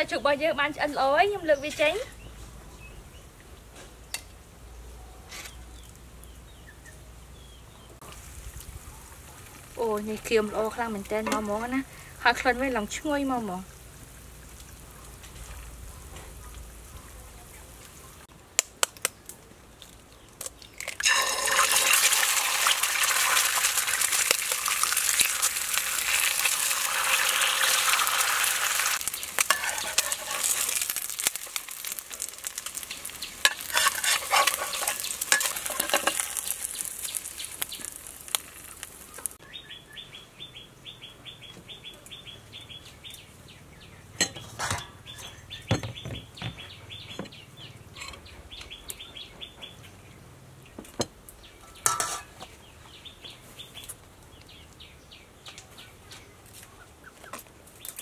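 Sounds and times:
eggs sizzling in hot oil: 8.0s - 18.3s, 20.4s - 39.4s.

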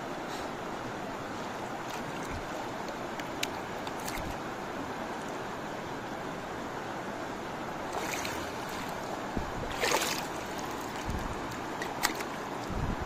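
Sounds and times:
river water rushing: 0.0s - 13.0s
water splash: 7.9s - 12.4s.

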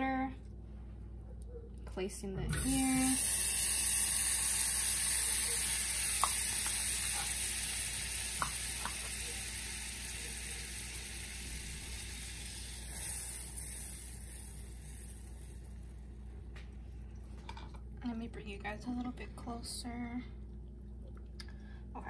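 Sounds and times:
butter sizzling in saucepan: 2.5s - 16.0s.

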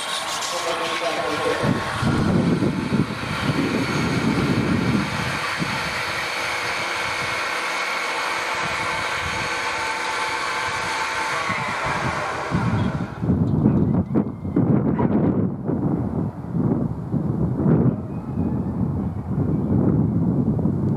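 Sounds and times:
mechanical whirring: 0.0s - 14.8s
low rumbling: 0.6s - 20.9s.

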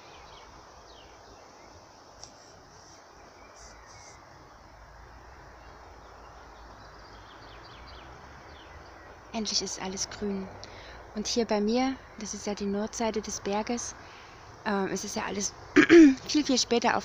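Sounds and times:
bird chirps: 0.0s - 4.6s
low background hiss: 0.0s - 17.0s.

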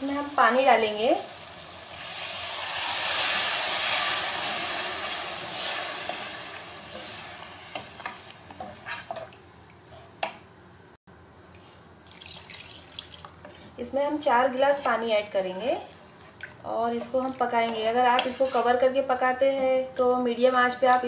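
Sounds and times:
loud sizzle of water in hot pot: 0.0s - 8.4s
wooden spoon stirring a pot: 6.9s - 10.3s, 14.6s - 18.9s.

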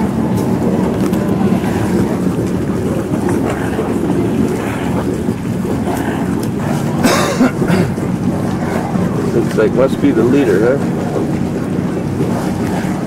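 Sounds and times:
boat engine running: 0.0s - 13.0s
wind buffeting microphone: 0.0s - 13.0s.

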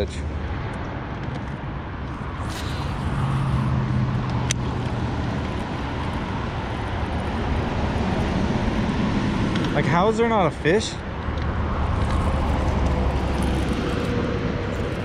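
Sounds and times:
outdoor noise: 0.0s - 15.0s
electric trolling motor humming: 2.2s - 9.8s, 11.5s - 15.0s.

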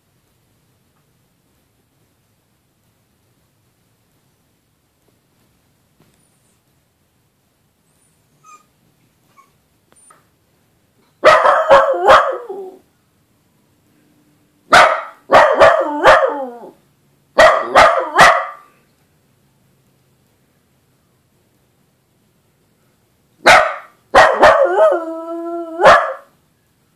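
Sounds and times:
dog barking and howling: 11.2s - 12.8s, 14.7s - 16.8s, 17.4s - 18.7s, 23.4s - 26.3s.

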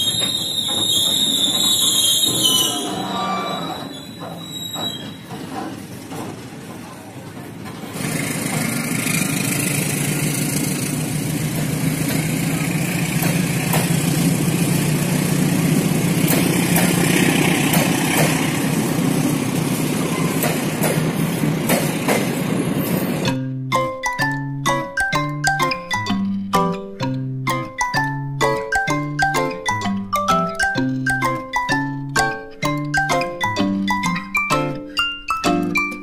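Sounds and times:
train engine drone: 0.0s - 23.3s
wheel clicks on rails: 3.8s - 22.4s.

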